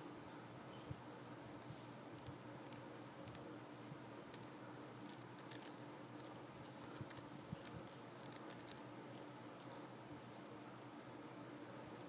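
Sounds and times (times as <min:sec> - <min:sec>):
low steady hum: 0:00.0 - 0:12.0
tiny high clicks: 0:04.3 - 0:09.8.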